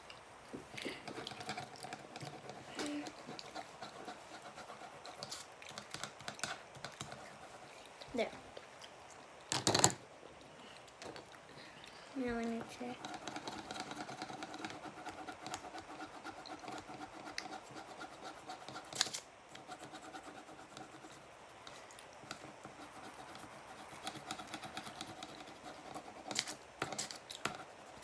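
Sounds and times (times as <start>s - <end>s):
faint steady hum: 0.0s - 28.0s
marker scribbling on paper: 1.1s - 5.4s, 12.9s - 21.4s, 22.2s - 28.0s.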